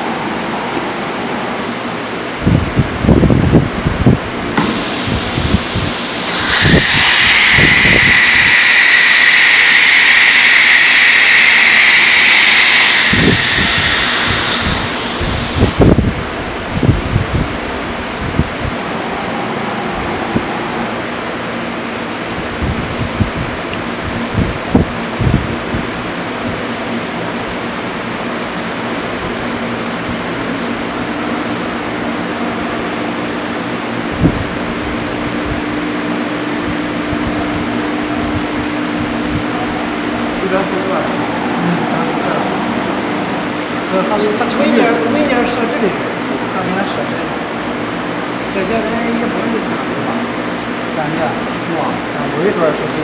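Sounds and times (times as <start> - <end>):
compressed air hissing with whine: 4.5 - 16.3
router machine whirring: 4.6 - 15.9
low hum: 5.5 - 27.9, 31.0 - 46.5.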